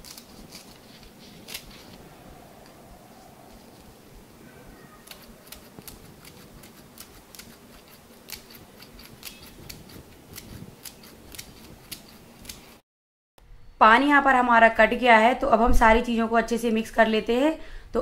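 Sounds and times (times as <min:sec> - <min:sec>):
scissors snipping leaves: 0:00.0 - 0:02.0, 0:04.9 - 0:12.8.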